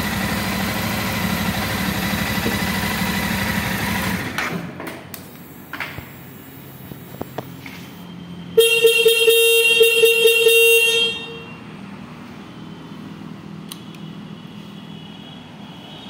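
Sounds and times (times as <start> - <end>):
motorcycle horn honk: 8.6 - 11.6.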